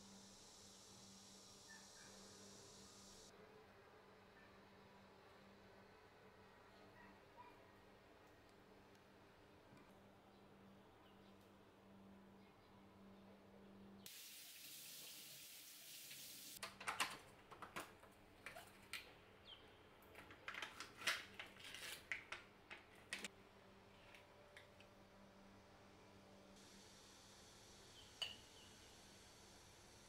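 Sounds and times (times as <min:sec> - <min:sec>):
steady hissing: 0:00.0 - 0:03.3.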